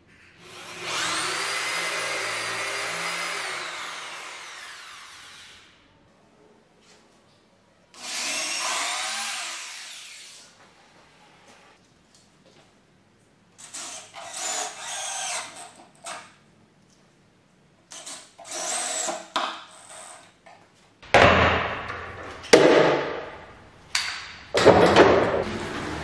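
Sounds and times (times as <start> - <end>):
loud thumps: 21.0 - 23.6.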